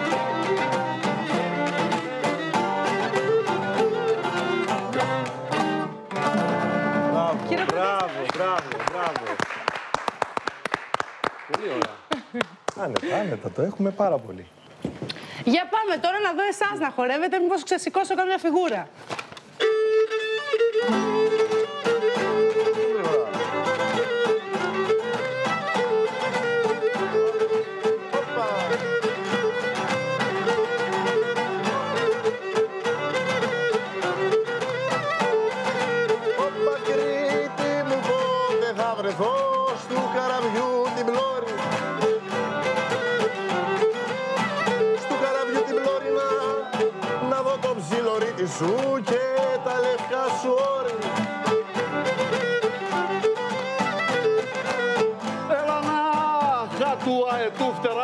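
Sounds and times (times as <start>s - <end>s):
bowed lyra melody: 0.0s - 7.8s, 19.6s - 39.0s
strummed lute accompaniment: 0.0s - 9.0s, 19.4s - 58.0s.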